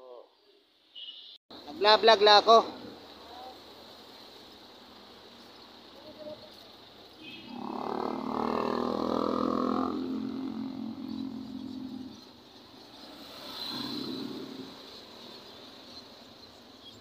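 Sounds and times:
motor vehicles passing: 6.3 - 16.6
motorcycle passing: 7.2 - 15.3.

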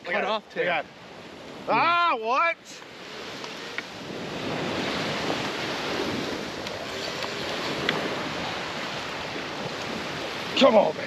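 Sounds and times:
surf washing onto a beach: 0.0 - 11.0
wind on the microphone: 2.9 - 11.0.

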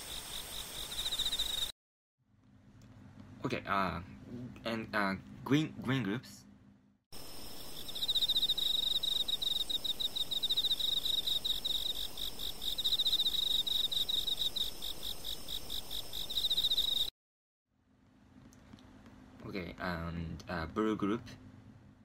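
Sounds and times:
cricket-like chirping trill: 0.0 - 1.7, 7.2 - 17.1.

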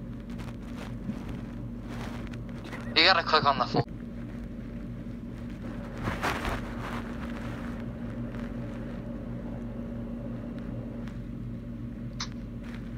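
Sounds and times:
low hum: 0.0 - 12.9.

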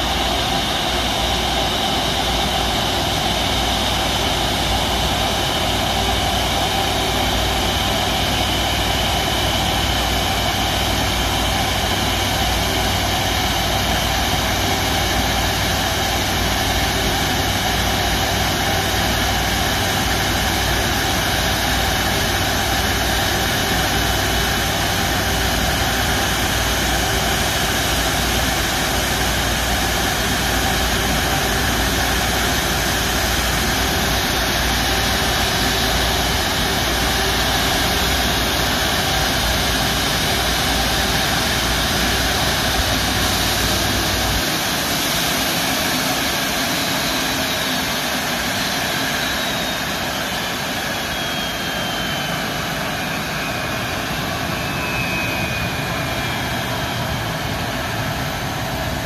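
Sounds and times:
jet engine whine: 0.0 - 59.0.

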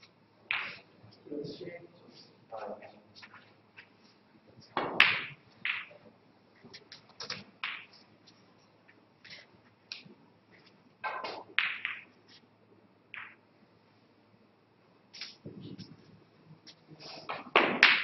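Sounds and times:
snooker ball clicks: 4.8 - 6.0, 6.9 - 7.9, 11.0 - 12.1, 13.2 - 13.4.

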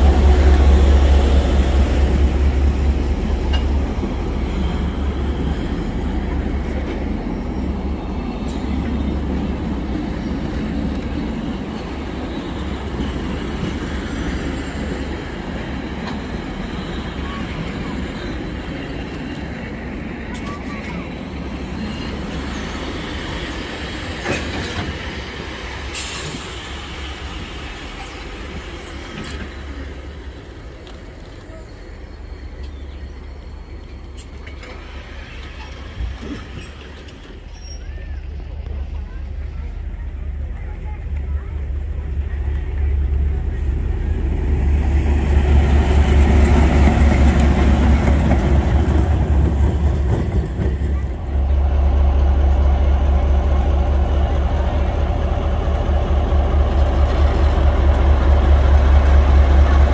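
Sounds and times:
train wheels rumbling on rails: 0.0 - 59.9
faint wheel squeal: 31.3 - 38.4.

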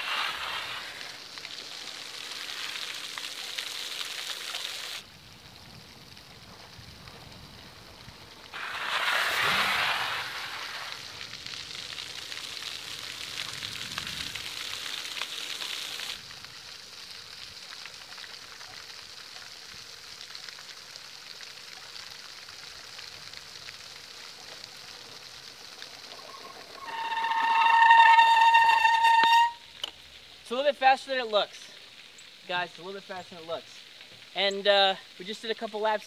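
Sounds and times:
steady outdoor hiss: 0.0 - 36.0
electric bike rushing past: 8.6 - 11.0.

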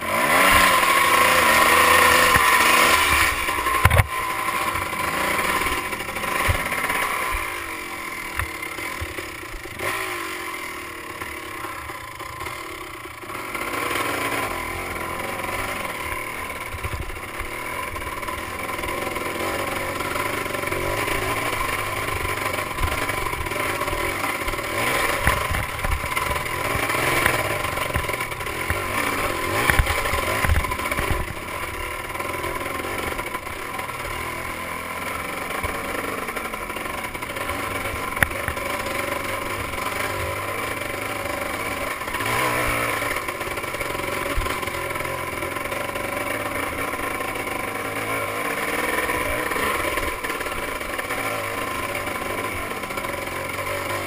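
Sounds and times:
dirt bike engine revving: 0.0 - 54.0
bike knocks and rattles: 0.1 - 10.2, 13.3 - 34.6.

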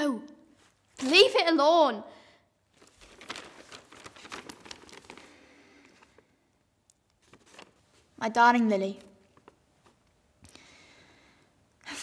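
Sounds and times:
paper rustling and crinkling: 0.6 - 1.3, 2.7 - 6.3, 7.2 - 8.2, 9.0 - 10.0.

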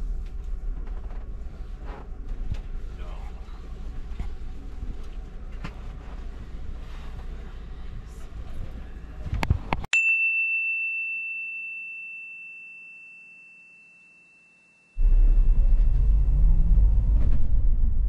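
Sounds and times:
bus engine and road rumble: 0.0 - 9.9, 15.0 - 18.0
high bell-like ding: 10.0 - 16.0.

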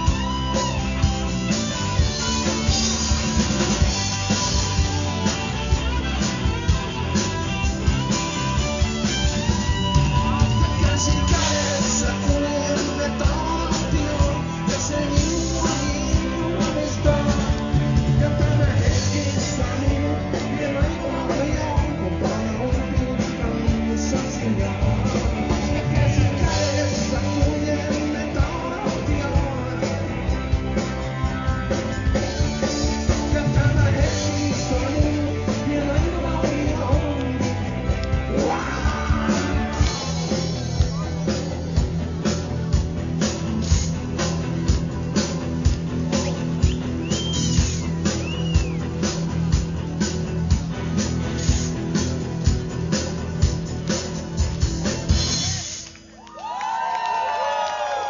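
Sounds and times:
bass guitar: 0.0 - 58.0
drum kit: 0.0 - 58.0
electric guitars: 0.0 - 58.0
person singing: 9.9 - 41.2.

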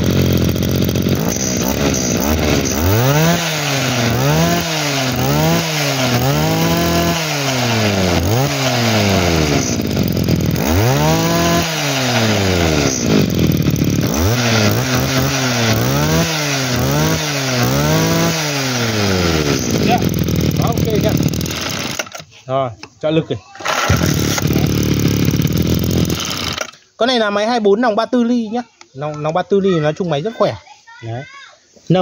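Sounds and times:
two-stroke engine revving: 0.0 - 22.3, 23.6 - 26.8.

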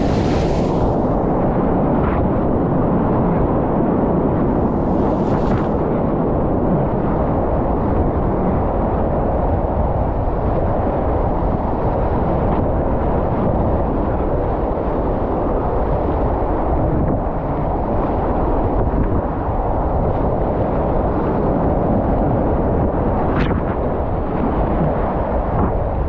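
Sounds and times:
whitewater rapids rushing: 0.0 - 1.1.

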